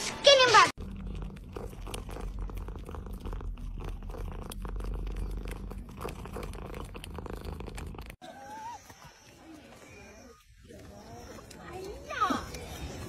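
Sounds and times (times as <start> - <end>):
cat purring: 0.8 - 8.2.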